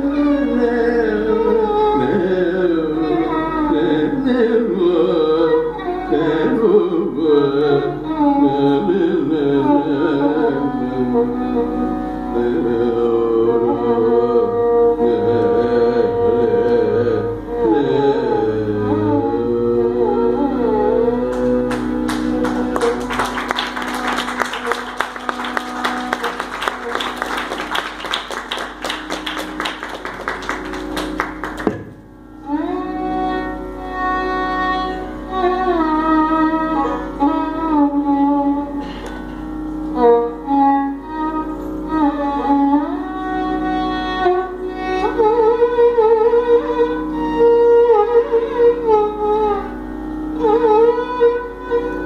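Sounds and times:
violin melody with slides: 0:00.0 - 0:52.0
steady drone: 0:09.3 - 0:52.0
mridangam drum strokes: 0:31.3 - 0:32.2.

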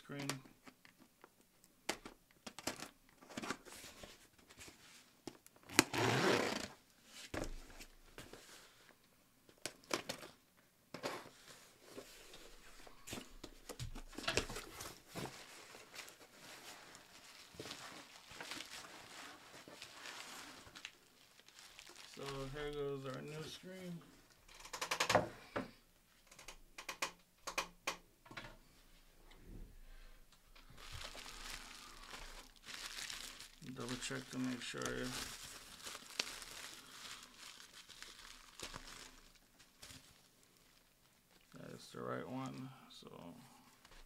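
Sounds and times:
plastic crinkling: 0:12.0 - 0:23.6, 0:30.5 - 0:41.6.

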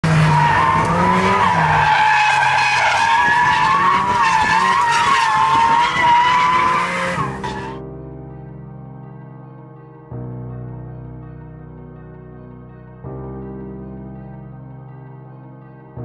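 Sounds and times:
car engine running: 0:00.0 - 0:07.8
tyres squealing: 0:00.0 - 0:07.8.

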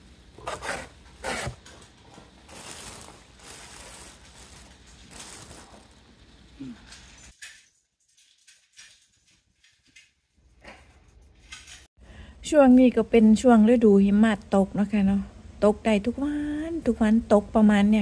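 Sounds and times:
plastic bag crinkling: 0:00.5 - 0:07.3.

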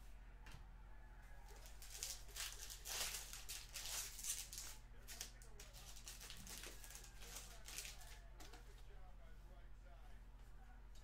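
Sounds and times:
foil pack crinkling and tearing: 0:01.5 - 0:08.2
cards rustling: 0:01.5 - 0:08.8.

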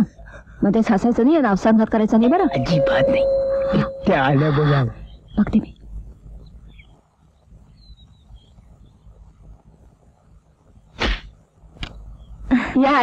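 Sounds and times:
faint high chirps: 0:02.1 - 0:05.8.

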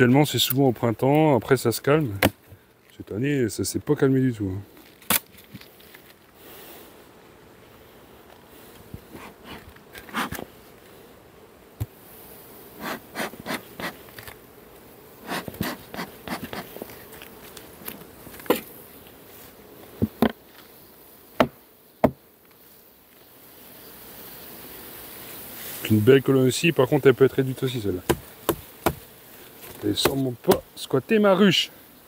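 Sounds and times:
clicks and scrapes of hive parts: 0:00.0 - 0:03.1, 0:04.7 - 0:06.4, 0:08.2 - 0:11.0, 0:12.7 - 0:23.4, 0:27.2 - 0:30.9
bees buzzing: 0:05.7 - 0:32.0.

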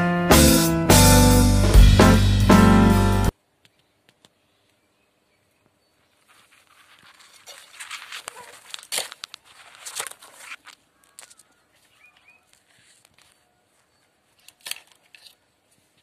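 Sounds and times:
dry palm fronds rustling: 0:06.0 - 0:16.0.

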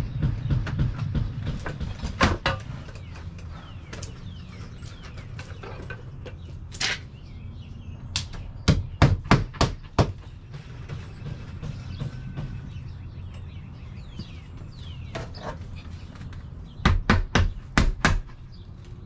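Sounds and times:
hammer driving a nail: 0:08.6 - 0:10.3.

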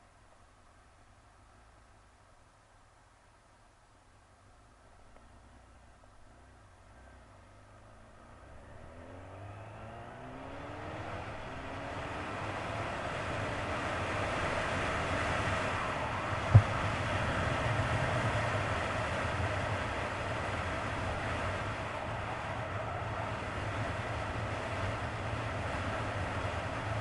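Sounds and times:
wind and road noise: 0:00.0 - 0:27.0
motorcycle engine accelerating: 0:05.7 - 0:27.0
sharp knock: 0:16.5 - 0:16.8.

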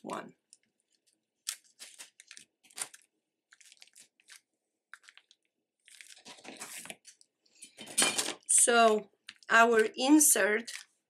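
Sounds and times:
paper wrappers crinkling: 0:00.5 - 0:07.3.

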